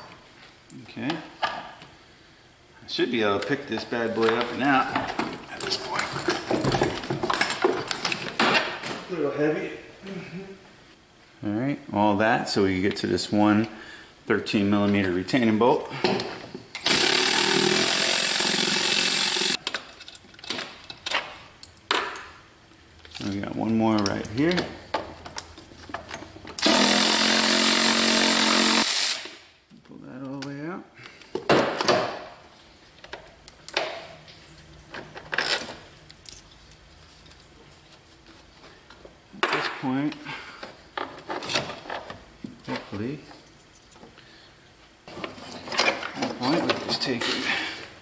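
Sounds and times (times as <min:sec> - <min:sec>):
cordless power tool running: 0:16.8 - 0:19.6, 0:26.6 - 0:29.2
metal tools clinking and rattling: 0:19.6 - 0:21.2, 0:39.4 - 0:39.9.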